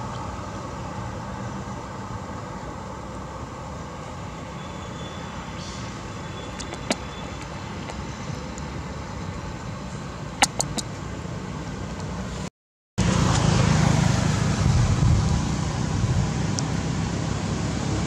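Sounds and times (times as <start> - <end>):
low outdoor rumble: 0.0 - 18.0
short sharp clicks: 10.4 - 10.9.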